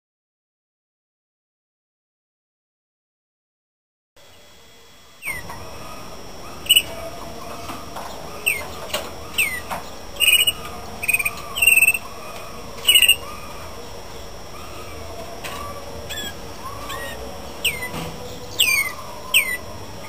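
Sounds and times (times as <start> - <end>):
canary singing: 5.0 - 20.0.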